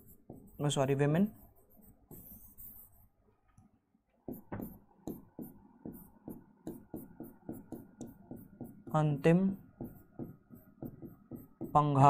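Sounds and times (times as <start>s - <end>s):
stylus tapping on glass: 9.7s - 11.8s.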